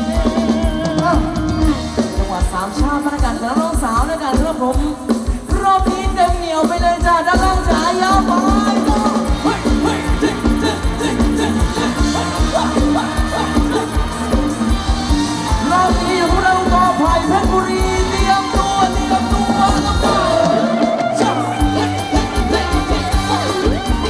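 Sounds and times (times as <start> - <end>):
live band playing dance music: 0.0 - 24.0
person singing: 0.0 - 24.0
steady drum beat: 0.0 - 24.0.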